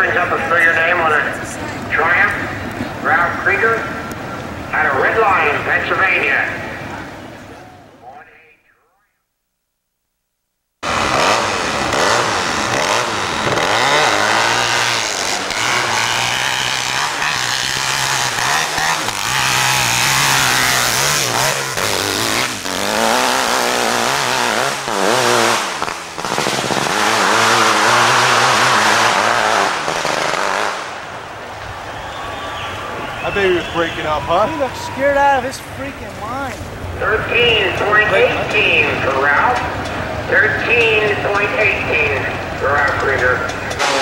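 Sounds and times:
motorcycle engine at full throttle: 10.8s - 31.0s, 36.9s - 44.0s.

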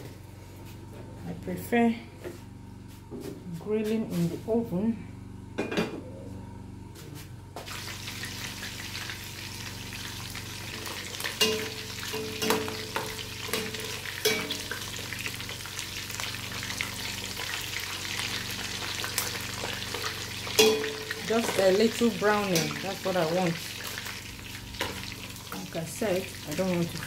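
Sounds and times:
meat sizzling in hot oil: 7.7s - 27.0s
metal spoon clinking on pot: 11.4s - 14.7s, 20.6s - 21.6s.

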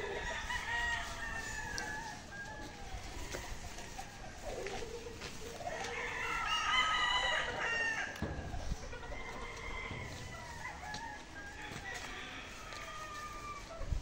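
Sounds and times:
rooster crowing: 0.0s - 3.7s, 5.8s - 8.4s, 9.1s - 13.7s.

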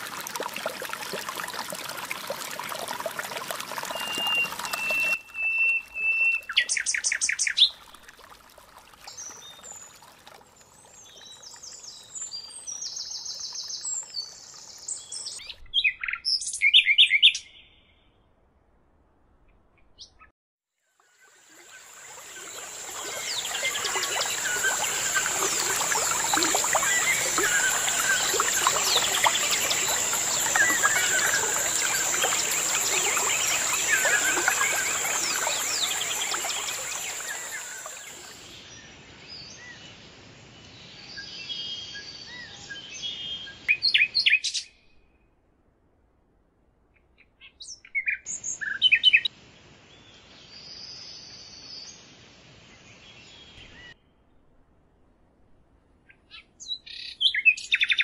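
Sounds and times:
stream flowing: 0.0s - 15.4s, 20.9s - 38.7s
whistled bird note: 3.8s - 7.6s
chorus of birds chirping: 21.6s - 38.8s.

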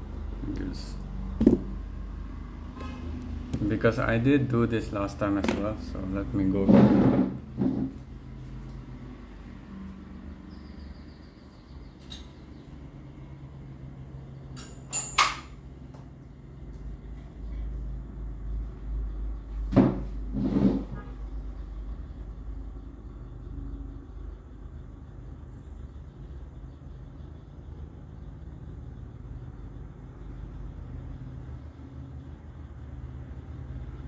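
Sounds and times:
low steady hum: 0.0s - 34.0s
knocks: 1.4s - 1.8s.

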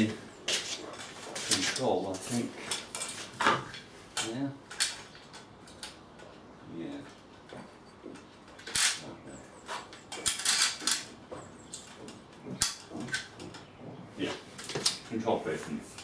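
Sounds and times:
plastic hose knocking and rattling: 11.3s - 14.0s.

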